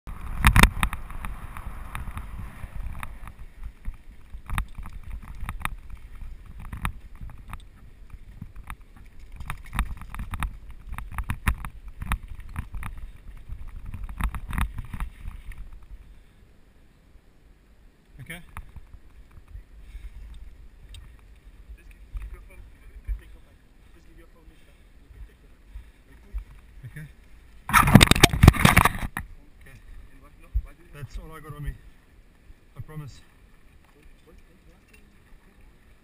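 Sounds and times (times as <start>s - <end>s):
bike rattling over bumps: 0.1s - 15.9s, 27.6s - 29.4s
wind rumbling on microphone: 0.1s - 16.4s, 18.2s - 36.0s.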